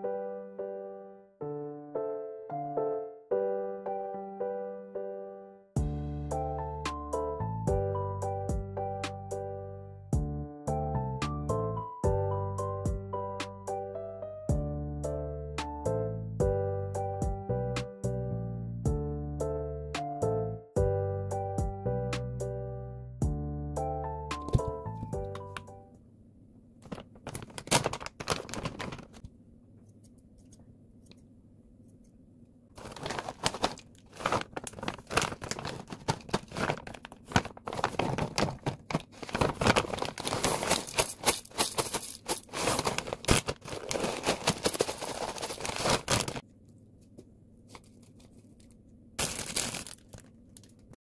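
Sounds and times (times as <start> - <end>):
plastic bag rustling: 26.8 - 29.2, 32.8 - 46.4, 47.7 - 50.9.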